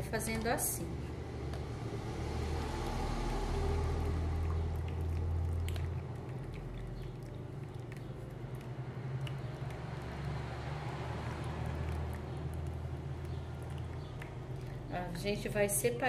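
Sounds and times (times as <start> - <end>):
milk pouring into strainer: 1.9 - 15.8
liquid trickling: 2.1 - 16.0.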